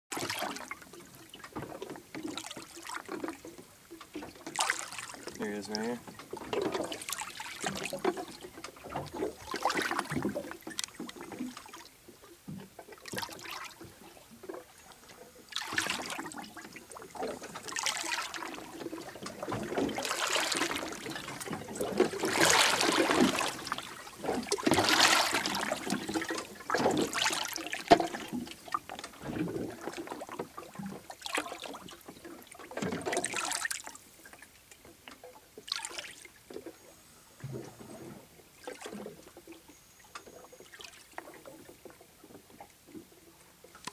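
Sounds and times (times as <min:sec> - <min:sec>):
seawater sloshing and gurgling: 0:00.1 - 0:43.9.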